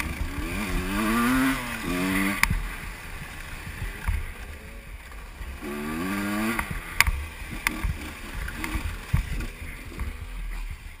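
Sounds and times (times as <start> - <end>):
two-stroke engine revving: 0.0 - 10.9
wind rumble on microphone: 2.2 - 11.0
sharp clicks: 6.5 - 10.2.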